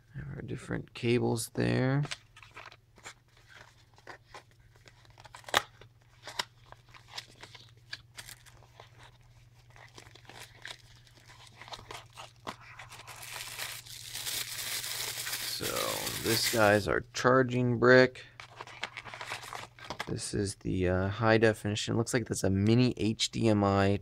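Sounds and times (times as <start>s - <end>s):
paperboard packaging opened by hand: 2.0s - 16.7s, 18.4s - 20.1s
plastic bags crinkling: 6.2s - 16.8s.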